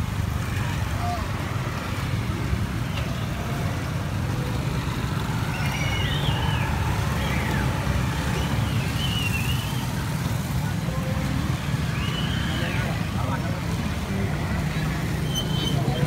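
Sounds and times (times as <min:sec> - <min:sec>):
traffic rumble: 0:00.0 - 0:16.0
faint high wavering calls: 0:05.4 - 0:10.1, 0:11.8 - 0:13.0.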